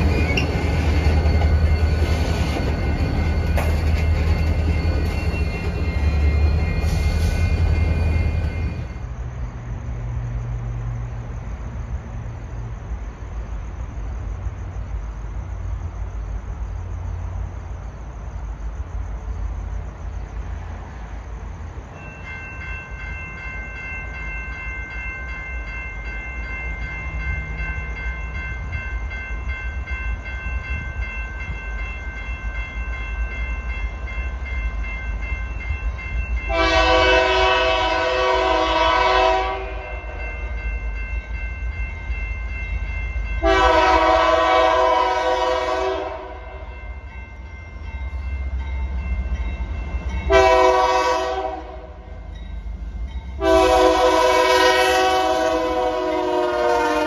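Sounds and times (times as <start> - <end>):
high-pitched ringing: 0.0 - 9.2
train rumble: 0.0 - 57.0
locomotive horn blast: 36.5 - 40.0, 43.4 - 46.5, 50.3 - 52.0, 53.4 - 57.0.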